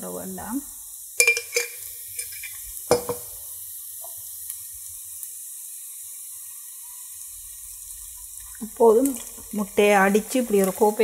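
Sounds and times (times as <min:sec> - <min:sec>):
onions sizzling in oil: 0:00.0 - 0:11.0
metal utensil clinking on pan: 0:01.2 - 0:03.3.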